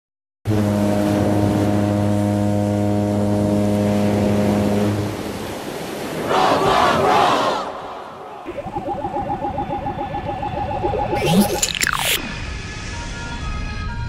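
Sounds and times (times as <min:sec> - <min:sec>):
foghorn blast: 0:00.5 - 0:04.9
group of voices shouting: 0:06.3 - 0:08.4.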